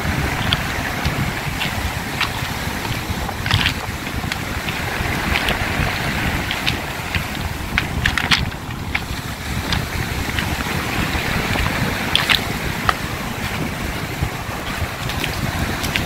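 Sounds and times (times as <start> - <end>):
surf breaking on pebble beach: 0.0 - 16.0
wind buffeting microphone: 0.0 - 16.0
stones clicking together: 0.3 - 13.6, 14.6 - 16.0.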